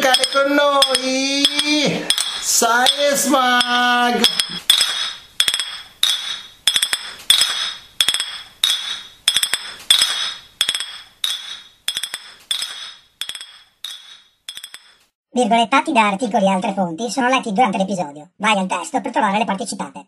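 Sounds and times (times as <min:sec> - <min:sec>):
cutlery clinking against cup: 0:00.0 - 0:15.0.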